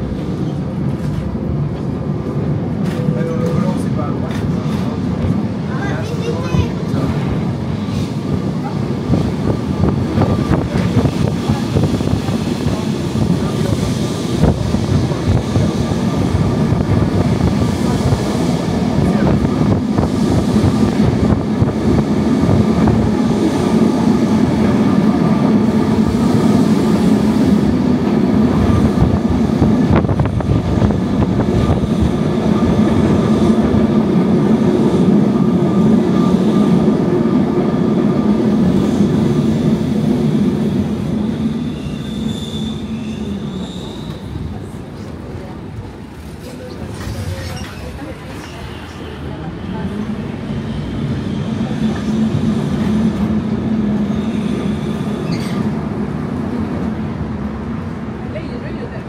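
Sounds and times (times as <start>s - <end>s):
tram wheels rumbling on track: 0.0s - 59.0s
high wheel squeal: 41.6s - 44.4s.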